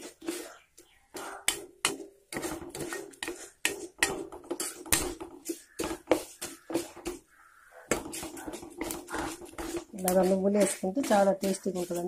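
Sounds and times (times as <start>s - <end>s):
spoon scraping a frying pan: 1.2s - 12.0s
seeds frying in oil: 7.9s - 12.0s.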